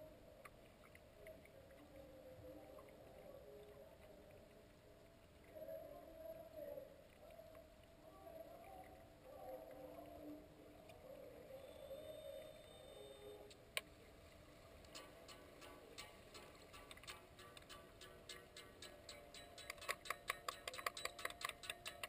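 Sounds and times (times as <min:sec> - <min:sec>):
sharp click: 0:16.8 - 0:22.0.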